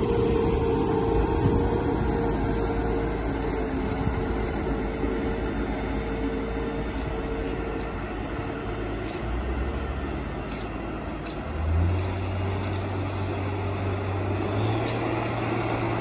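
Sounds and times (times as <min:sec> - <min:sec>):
high steady whine: 0:00.0 - 0:11.5
tractor diesel engines running: 0:00.0 - 0:16.0.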